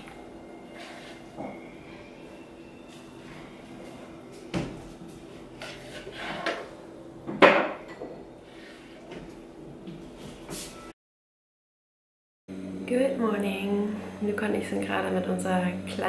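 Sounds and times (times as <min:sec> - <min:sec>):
utensil scraping frying pan: 0:05.5 - 0:06.8
low steady hum: 0:12.5 - 0:16.0.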